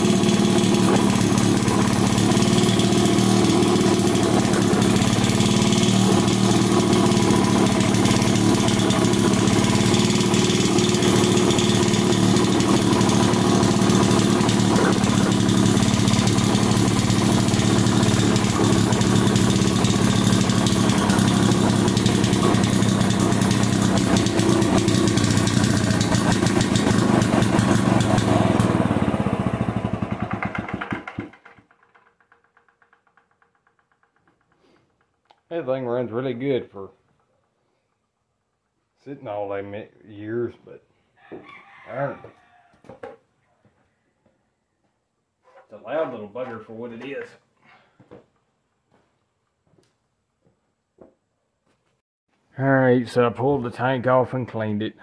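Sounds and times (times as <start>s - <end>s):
generator engine running: 0.0s - 32.7s.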